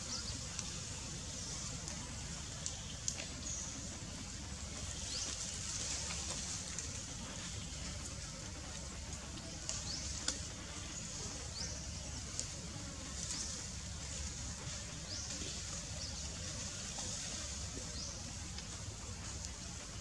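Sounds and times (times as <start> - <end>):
faint clicks: 2.6 - 3.5, 8.7 - 10.5, 12.3 - 12.6.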